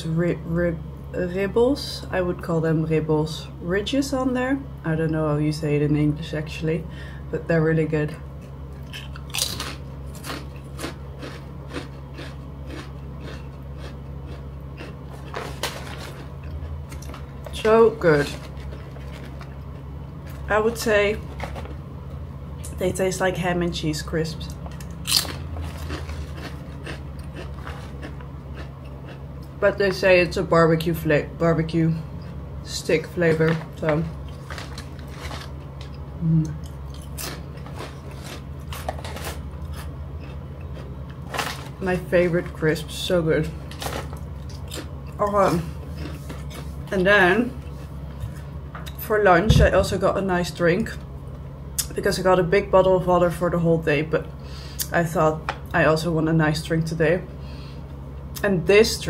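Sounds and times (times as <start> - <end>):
chewing crunchy crisps: 8.4 - 21.9, 24.4 - 30.0, 33.0 - 49.1
low vocal hum: 36.1 - 36.8.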